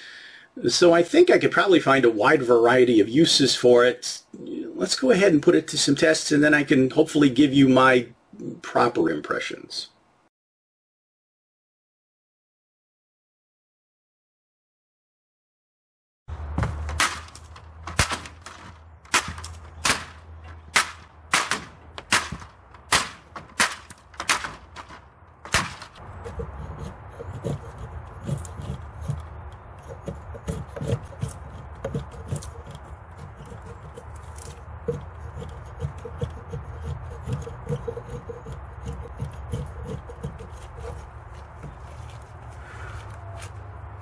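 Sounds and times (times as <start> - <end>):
hatchet chopping wood: 16.4 - 41.0
blade scraping stick: 23.2 - 42.3.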